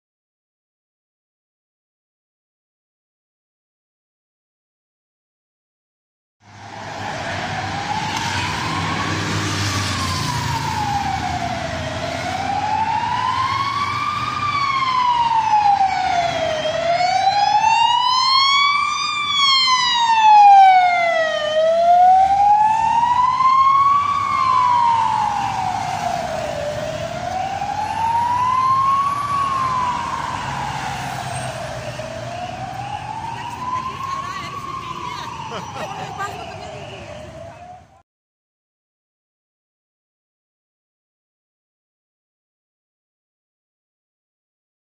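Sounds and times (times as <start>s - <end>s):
traffic rumbling: 6.4s - 38.0s
ambulance siren wailing: 6.5s - 38.0s.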